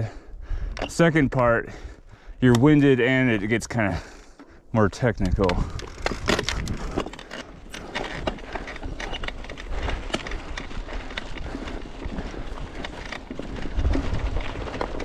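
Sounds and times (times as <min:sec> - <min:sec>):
bike clicks and knocks: 0:04.2 - 0:15.0
tyres crunching over rocks: 0:04.3 - 0:15.0.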